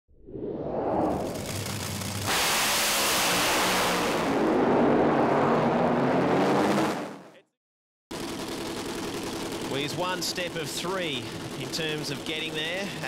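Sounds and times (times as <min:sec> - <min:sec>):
rushing vehicle sound effect: 0:00.2 - 0:07.4.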